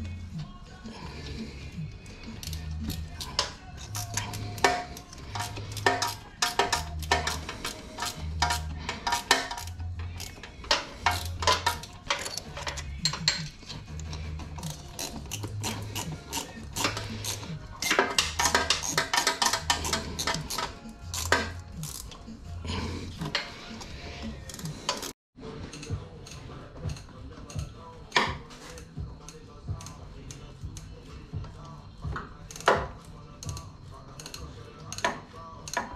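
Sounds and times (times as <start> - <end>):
background music with bass beat: 0.0 - 35.9
hand tools clinking on metal: 2.4 - 22.2.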